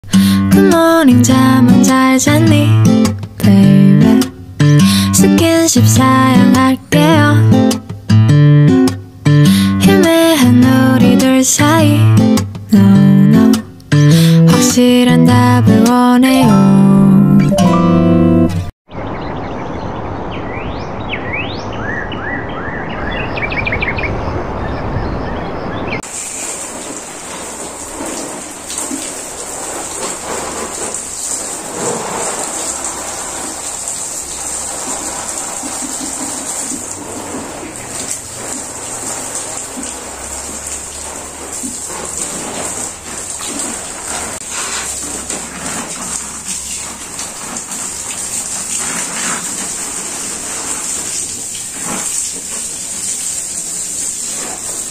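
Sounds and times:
hose spray on leaves: 26.0 - 54.9.

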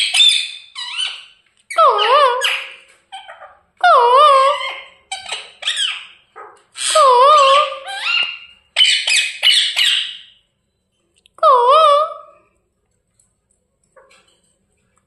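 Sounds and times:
parrot squeaky calls: 0.0 - 10.4.

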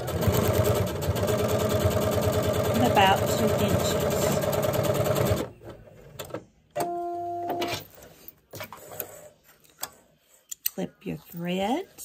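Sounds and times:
sewing machine stitching: 0.0 - 5.5.

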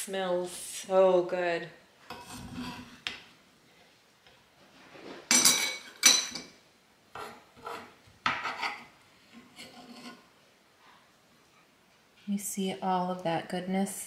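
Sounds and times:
metal spoon scraping skillet: 2.1 - 3.1, 7.2 - 10.3.

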